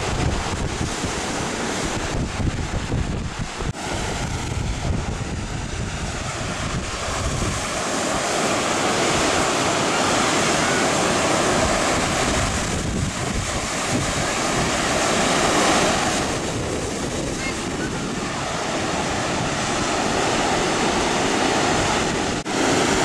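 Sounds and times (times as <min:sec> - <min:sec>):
surf breaking on a beach: 0:00.0 - 0:23.0
wind rumbling on microphone: 0:00.0 - 0:23.0.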